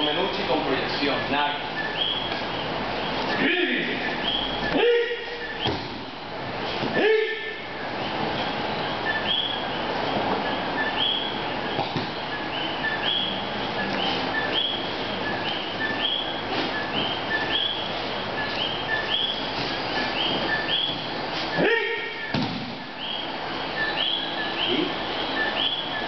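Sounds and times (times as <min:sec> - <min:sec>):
thuds on padded mats: 0:05.6 - 0:06.1, 0:22.3 - 0:22.8.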